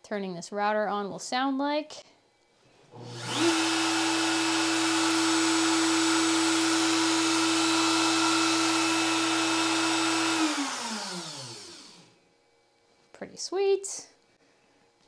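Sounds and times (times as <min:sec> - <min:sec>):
router motor whining: 0:02.9 - 0:12.2.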